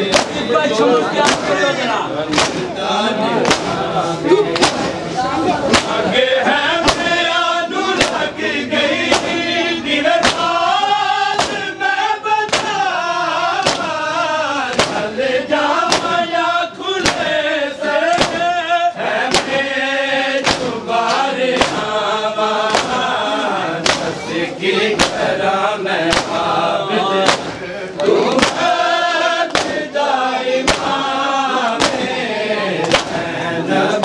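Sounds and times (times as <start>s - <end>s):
men chanting together: 0.0s - 34.0s
hands slapping chests: 0.1s - 0.4s, 1.2s - 1.6s, 2.3s - 2.7s, 3.4s - 3.8s, 4.5s - 5.0s, 5.7s - 6.0s, 8.0s - 8.3s, 9.1s - 9.4s, 10.2s - 10.6s, 11.3s - 11.7s, 12.4s - 12.9s, 13.5s - 14.0s, 14.7s - 15.1s, 15.8s - 16.2s, 17.0s - 17.3s, 18.0s - 18.5s, 19.3s - 19.6s, 20.3s - 21.9s, 22.6s - 23.0s, 23.8s - 24.2s, 25.0s - 25.3s, 26.0s - 26.5s, 27.2s - 28.8s, 29.4s - 29.9s, 30.6s - 31.1s, 31.7s - 32.1s, 32.8s - 33.2s.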